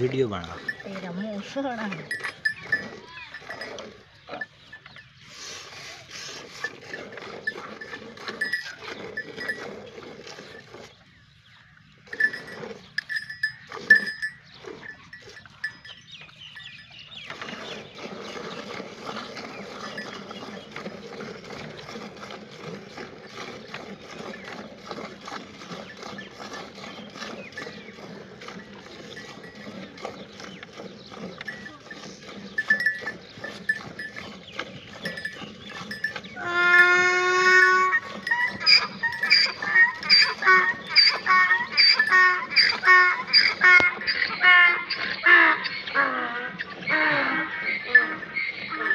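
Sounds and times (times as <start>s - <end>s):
milk squirting into metal pail: 17.2s - 44.7s.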